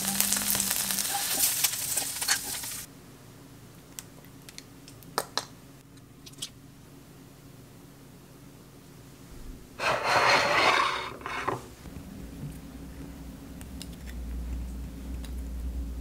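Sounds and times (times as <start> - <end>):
harsh rasping scrape: 9.8 - 11.7.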